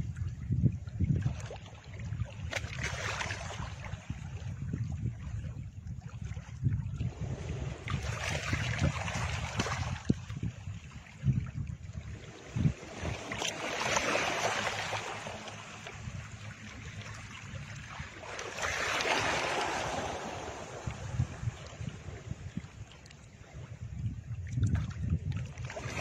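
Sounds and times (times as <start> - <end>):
surf-like rushing noise: 12.8 - 17.3, 17.9 - 22.0.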